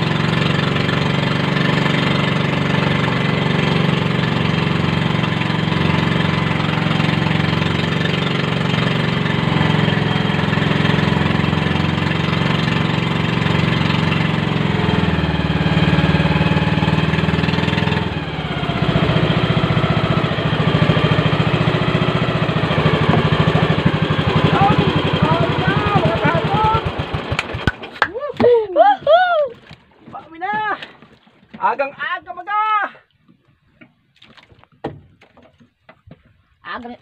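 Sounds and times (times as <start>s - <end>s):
small boat engine running: 0.0s - 28.0s.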